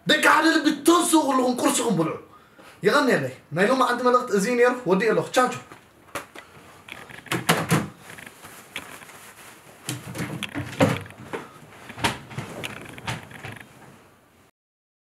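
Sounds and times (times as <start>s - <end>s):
bedding rustling: 6.5s - 14.2s.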